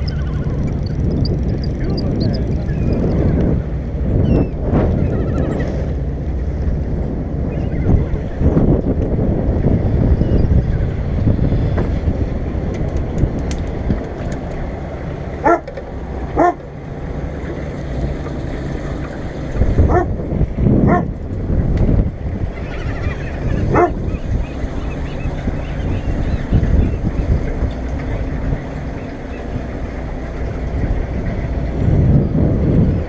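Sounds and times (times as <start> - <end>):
boat rumble: 0.0 - 33.0
wind on microphone: 0.0 - 33.0
dog barking: 15.4 - 15.6, 16.4 - 16.6, 23.8 - 24.0.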